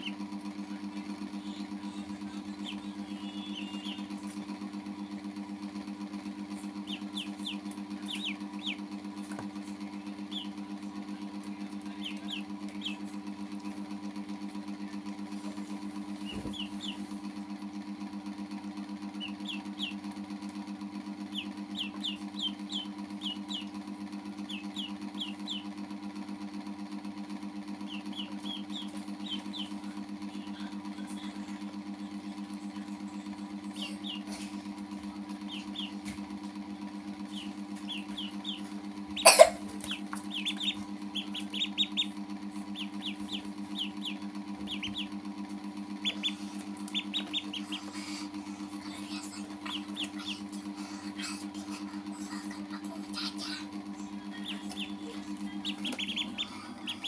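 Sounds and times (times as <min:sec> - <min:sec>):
ducklings peeping: 0:01.1 - 0:04.4, 0:06.7 - 0:10.7, 0:11.7 - 0:13.2, 0:16.1 - 0:17.2, 0:19.1 - 0:20.1, 0:21.2 - 0:25.8, 0:27.7 - 0:30.6, 0:33.6 - 0:34.6, 0:35.3 - 0:36.2, 0:37.2 - 0:53.5, 0:54.2 - 0:57.0.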